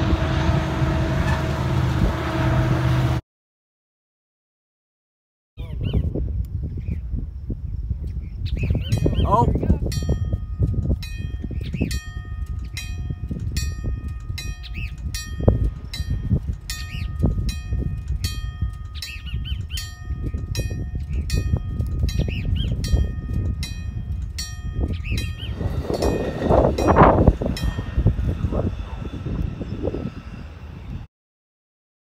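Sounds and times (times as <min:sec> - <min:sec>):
wind noise: 0:00.0 - 0:03.2, 0:05.6 - 0:31.1
railroad crossing bell ringing: 0:08.8 - 0:31.1.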